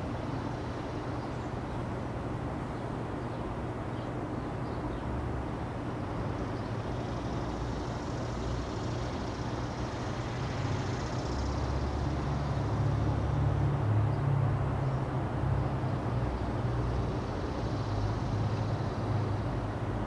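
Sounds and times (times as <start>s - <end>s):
diesel locomotive engine drone: 7.6s - 20.0s.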